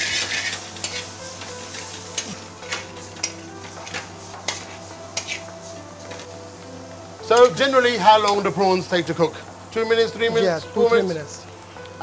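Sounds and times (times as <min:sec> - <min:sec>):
metal spoon scraping a pan: 0:00.0 - 0:05.5
prawns sizzling in a pan: 0:00.0 - 0:12.0.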